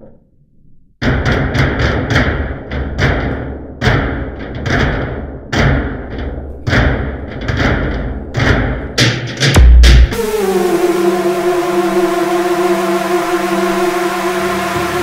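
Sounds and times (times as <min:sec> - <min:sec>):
electronic music with heavy drums: 0:08.1 - 0:15.0.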